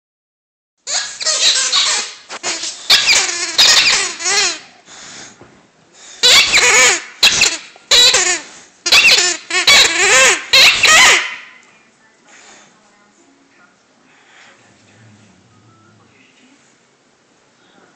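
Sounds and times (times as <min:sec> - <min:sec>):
squeaky toy squeaks: 0:00.8 - 0:04.7, 0:06.2 - 0:11.6.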